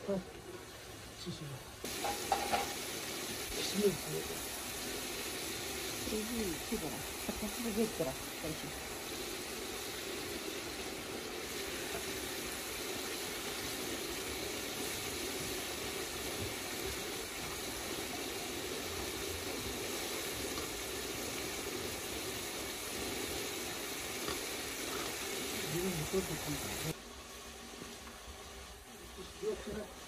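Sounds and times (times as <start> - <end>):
vegetables sizzling in hot oil: 0.0 - 30.0.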